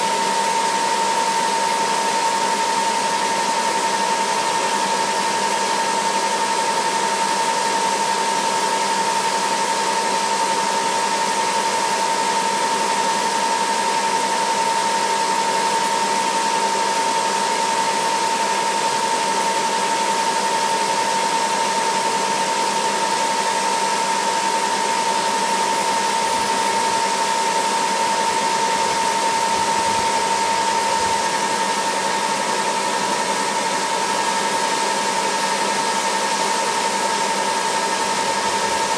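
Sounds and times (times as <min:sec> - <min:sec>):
helicopter turbine whine: 0:23.7 - 0:38.9.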